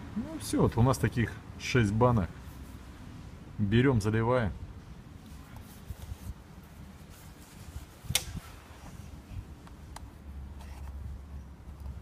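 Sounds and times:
sharp click: 8.1 - 8.4.

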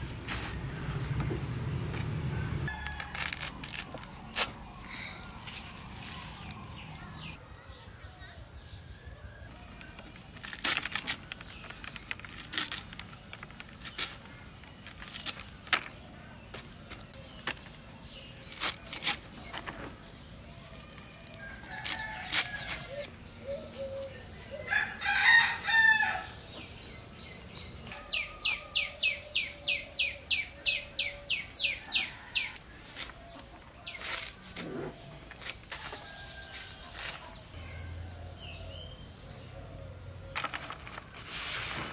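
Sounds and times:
rooster crowing: 24.6 - 26.4.

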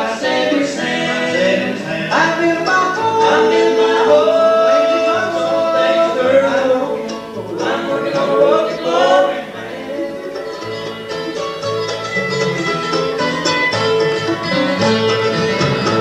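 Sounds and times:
acoustic string instruments: 0.0 - 16.0
electric bass: 10.8 - 16.0.

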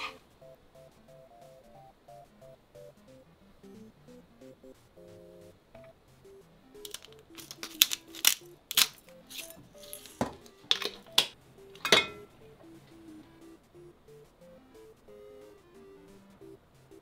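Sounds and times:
quiet background music: 0.0 - 17.0
glass bottle clinking: 11.8 - 12.3.

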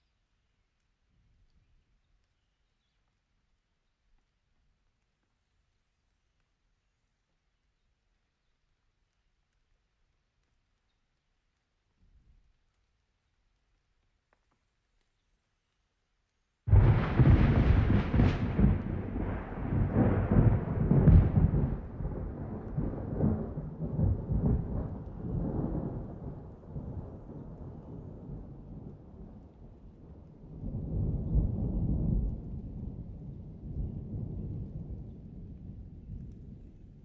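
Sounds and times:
thunderclap crackle and rumble: 16.7 - 37.0.

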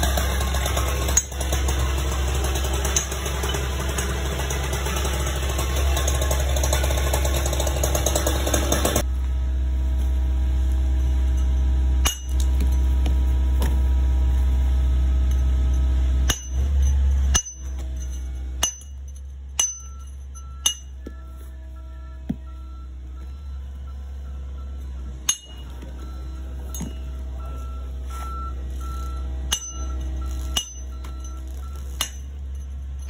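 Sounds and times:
steady low rumble: 9.0 - 33.0
hammer striking steel chisel: 11.4 - 13.7, 15.3 - 21.2, 25.2 - 26.0, 26.7 - 27.1, 29.5 - 32.7.

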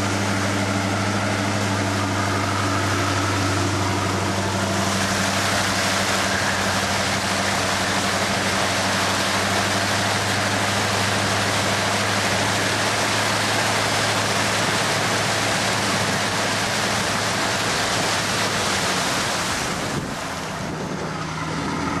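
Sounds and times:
floodwater rushing and splashing: 0.0 - 22.0
vehicle engine droning: 0.0 - 22.0.

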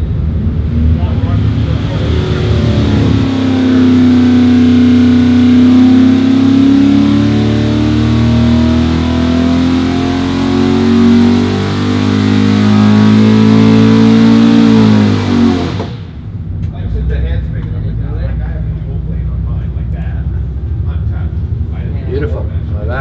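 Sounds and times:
engine revving at full throttle: 0.0 - 16.2.

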